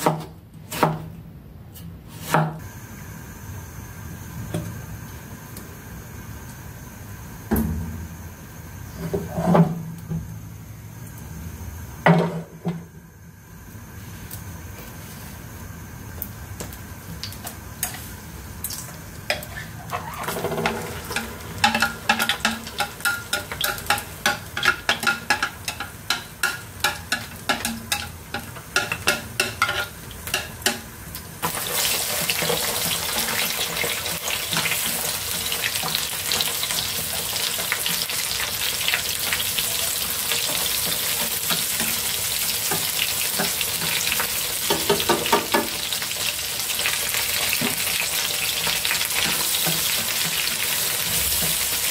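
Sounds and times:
meat sizzling in hot oil: 15.8s - 51.9s.

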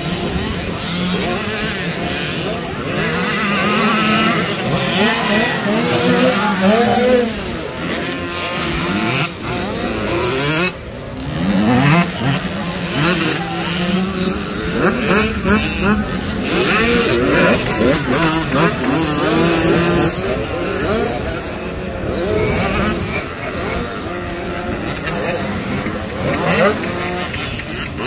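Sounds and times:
motocross bike engines revving: 0.0s - 28.0s.

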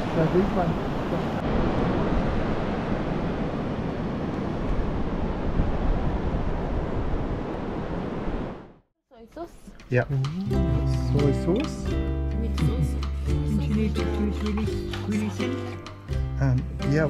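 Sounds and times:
sea surf washing: 0.0s - 8.6s
wind buffeting microphone: 0.9s - 8.6s.

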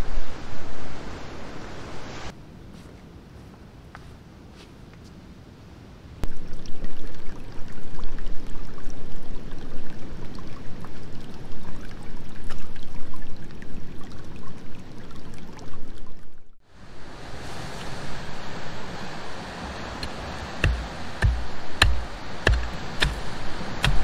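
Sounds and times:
stream water rushing over stones: 16.8s - 24.0s.

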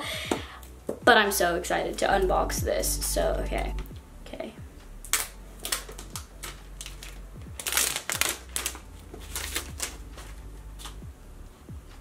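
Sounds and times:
plastic wrapping crinkling: 5.0s - 11.0s.

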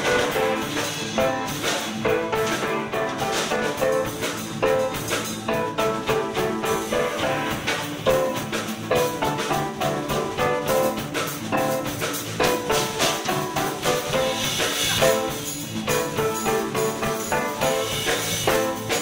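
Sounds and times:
drum and cymbal beat: 0.0s - 19.0s
live band jamming: 0.0s - 19.0s.

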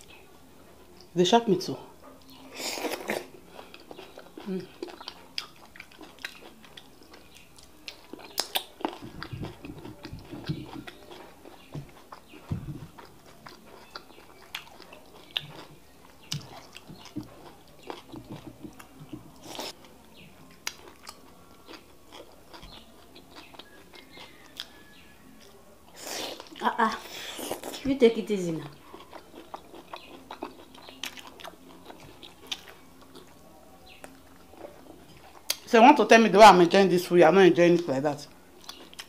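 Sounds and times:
wet chewing: 2.0s - 27.9s, 28.7s - 35.7s, 38.6s - 39.0s
lip smacking: 2.2s - 19.8s, 29.0s - 35.7s.

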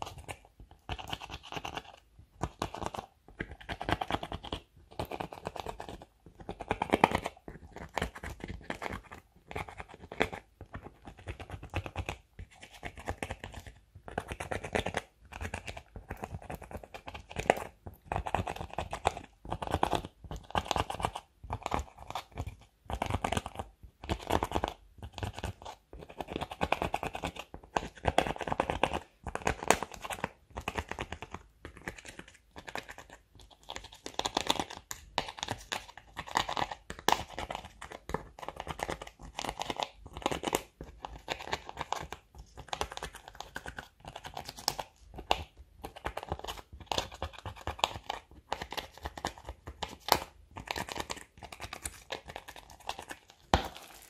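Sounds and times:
spatula scraping eyeshadow: 31.7s - 54.0s.

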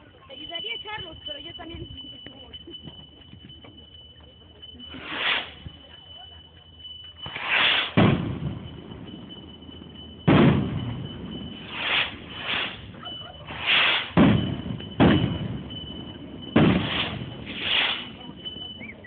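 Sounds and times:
fireworks hissing: 4.9s - 5.9s, 7.2s - 8.4s, 11.5s - 15.6s, 16.5s - 18.8s
fireworks bangs: 7.2s - 19.0s.

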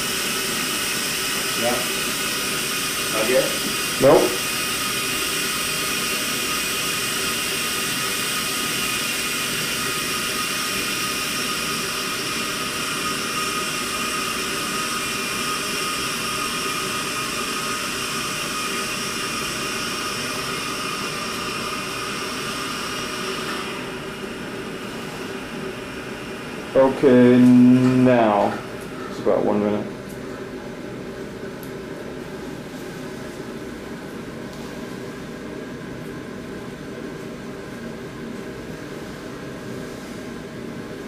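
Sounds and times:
gas hissing through a tube: 0.0s - 28.7s.

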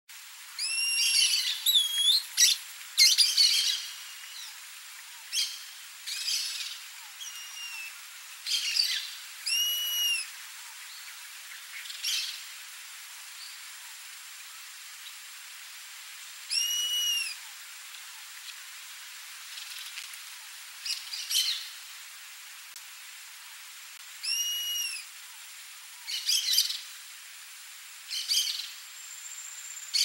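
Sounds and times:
bird whining whistles: 0.6s - 2.2s, 9.5s - 10.3s, 16.5s - 17.4s, 24.2s - 25.0s.

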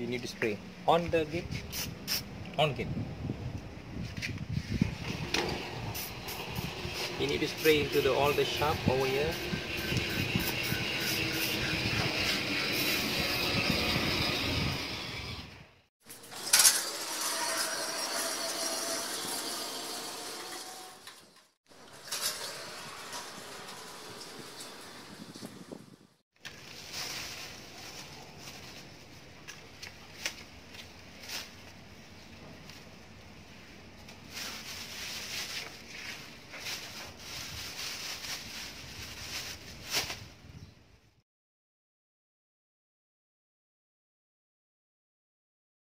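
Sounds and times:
gate motor running: 5.0s - 25.8s
plastic bag rustling: 26.4s - 29.2s, 34.2s - 40.2s.

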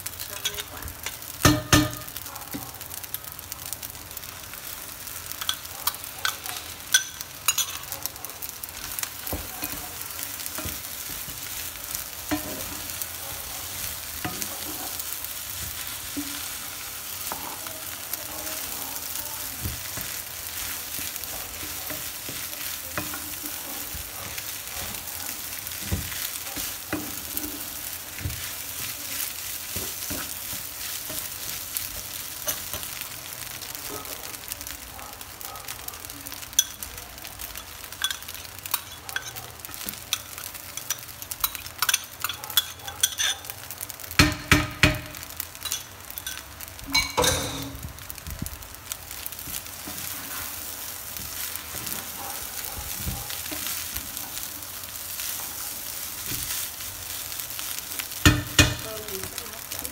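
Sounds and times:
fried rice sizzling in a pan: 0.0s - 59.9s
wooden spatula scraping a pan: 49.8s - 57.3s.

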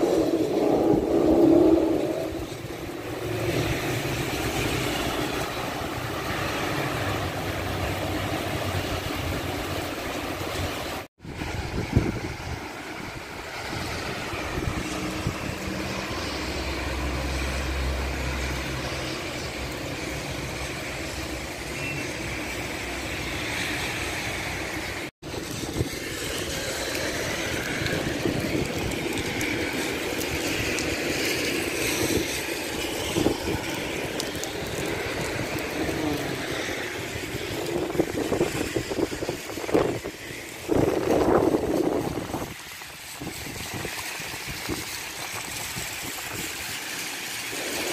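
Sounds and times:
low rumble of passing vehicle: 0.0s - 21.4s
tyres on wet asphalt: 0.0s - 47.9s.

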